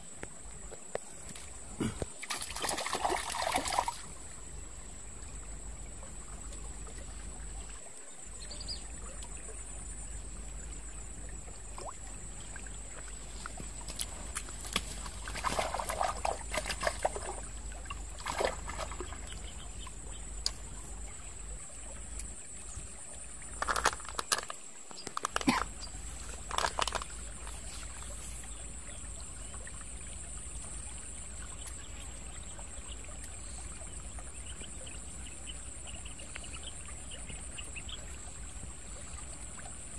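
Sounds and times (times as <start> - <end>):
stream trickling: 0.0 - 39.9
clicks and rustles: 23.6 - 28.2.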